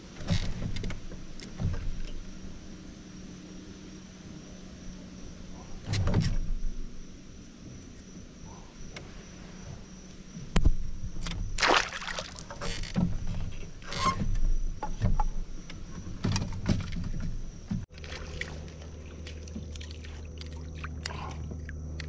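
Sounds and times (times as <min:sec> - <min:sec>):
knocks and rattles on kayak hull: 0:00.0 - 0:02.3, 0:10.4 - 0:19.9
steady low hum: 0:00.0 - 0:22.0
light water splashing: 0:11.3 - 0:13.1, 0:17.8 - 0:22.0.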